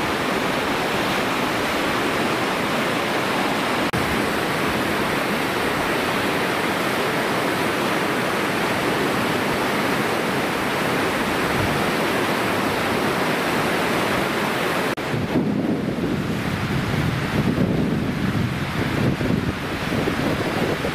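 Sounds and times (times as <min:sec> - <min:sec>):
river water rushing: 0:00.0 - 0:20.9
wind buffeting microphone: 0:15.0 - 0:20.9.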